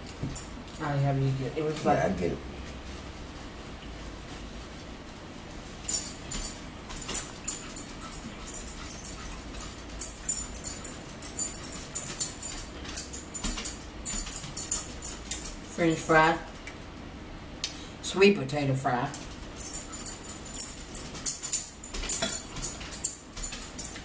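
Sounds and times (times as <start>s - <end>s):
cutlery clinking on dishes: 21.1s - 24.0s.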